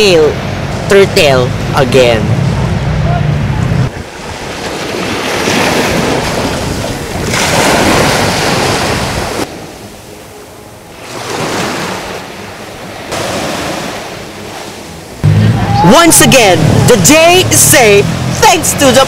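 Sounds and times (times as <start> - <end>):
waves breaking on beach: 4.0 - 19.0.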